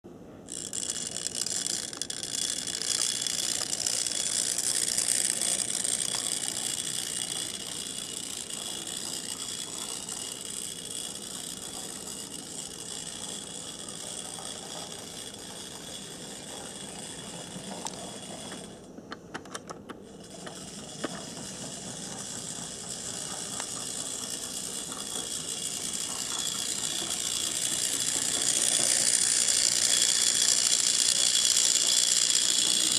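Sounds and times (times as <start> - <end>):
model locomotive motor whirring: 0.4 - 32.9
clicks: 17.7 - 21.4.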